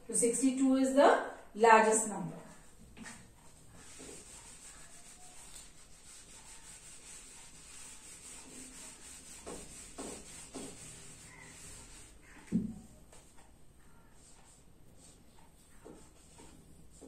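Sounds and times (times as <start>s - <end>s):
eraser rubbing on whiteboard: 2.5s - 12.5s, 13.4s - 17.0s.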